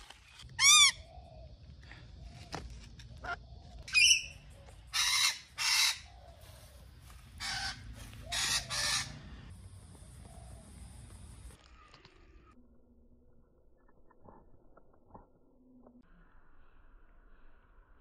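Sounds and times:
parrots calling and screeching: 0.5s - 1.2s, 3.2s - 6.2s, 7.3s - 9.3s.

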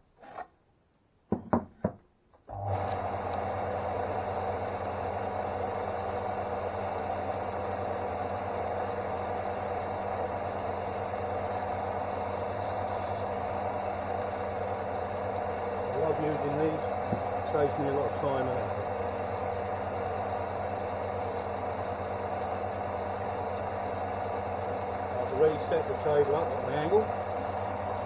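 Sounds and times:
sharp knocks: 1.3s - 2.0s
sander motor running: 2.5s - 28.0s.

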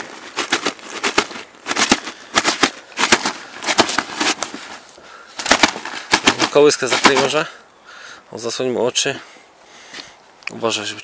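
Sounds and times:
fish thrashing in a net: 0.0s - 4.7s, 5.4s - 7.3s
net mesh rustling: 0.0s - 7.4s.

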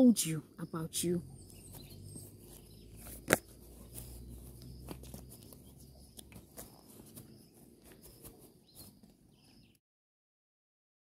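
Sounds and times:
faint card rustling: 1.7s - 9.5s.

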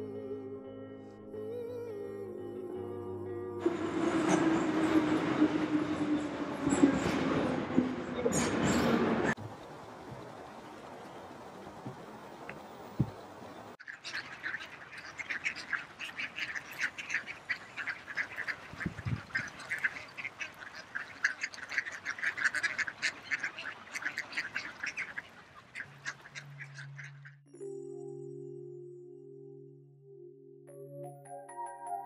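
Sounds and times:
ducks quacking: 10.1s - 27.4s.

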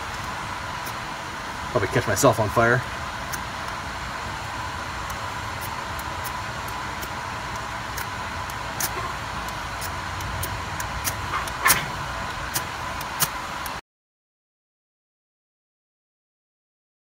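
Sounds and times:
steady background hum: 0.0s - 13.8s
ferro rod scraped with striker: 5.6s - 13.4s.

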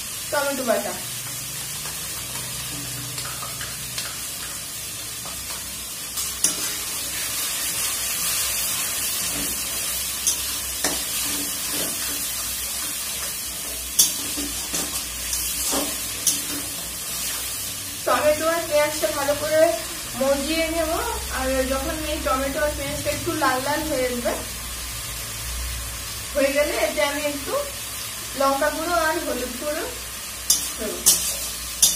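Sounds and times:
paste sizzling in oil: 0.0s - 31.9s
metal spatula tapping and scraping pan: 5.2s - 6.8s, 10.2s - 12.2s, 13.1s - 16.8s, 30.5s - 31.9s.

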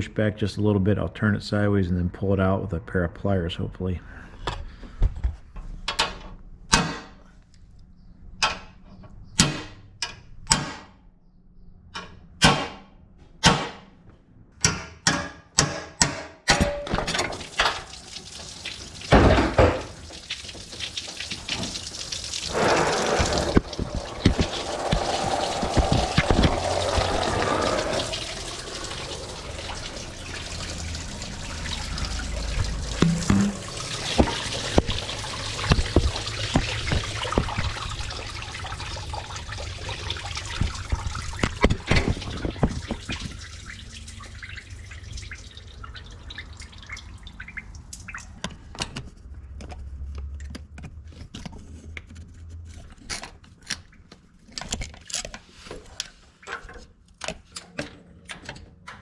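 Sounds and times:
coolant gushing into drain pan: 17.2s - 48.2s.

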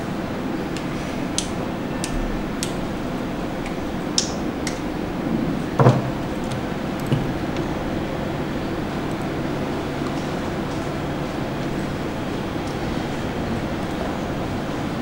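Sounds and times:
steady background hum: 0.0s - 15.0s
dull knock: 5.8s - 6.2s.

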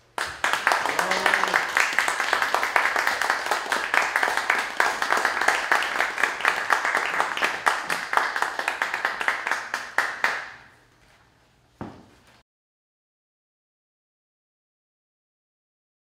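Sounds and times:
audience applauding: 0.1s - 10.7s.

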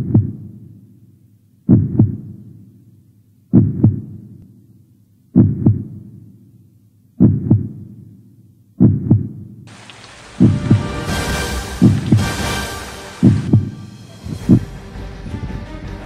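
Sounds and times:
heartbeat double thumps: 1.7s - 2.3s, 3.5s - 4.1s, 5.4s - 6.0s, 7.2s - 7.8s, 10.4s - 13.8s.

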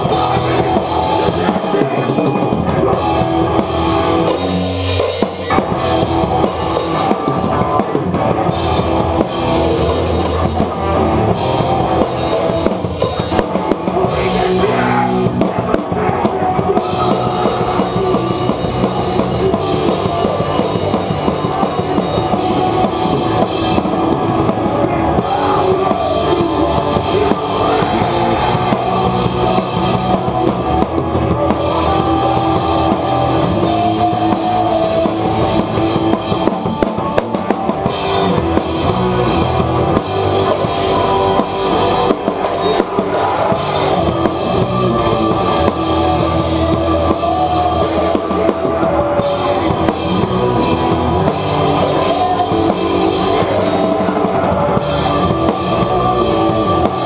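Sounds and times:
distorted electric guitars: 0.0s - 57.0s
pounding drum kit: 0.0s - 57.0s.

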